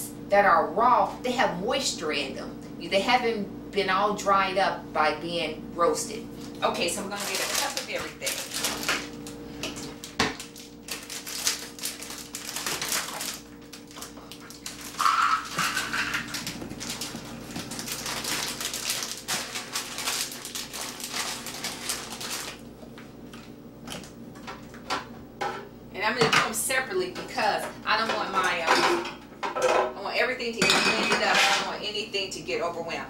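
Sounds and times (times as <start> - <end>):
plastic bag rustling: 6.3 - 24.1
nuts rattling in plastic cup: 14.7 - 16.4.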